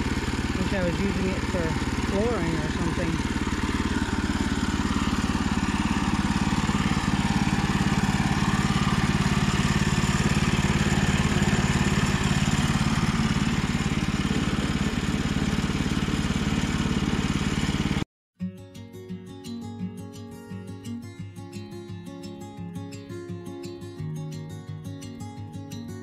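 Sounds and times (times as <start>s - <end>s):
small gasoline engine running: 0.0s - 18.0s.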